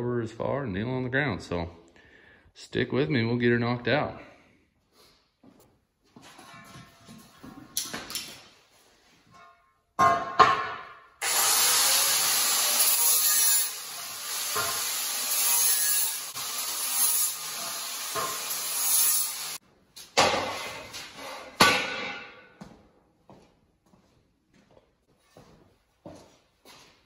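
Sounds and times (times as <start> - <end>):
angle grinder grinding steel: 11.2 - 19.6.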